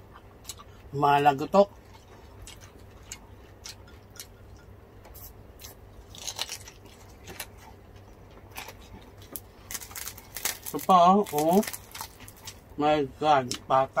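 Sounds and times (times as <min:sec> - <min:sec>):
crispy pork skin crunching: 0:05.2 - 0:12.7.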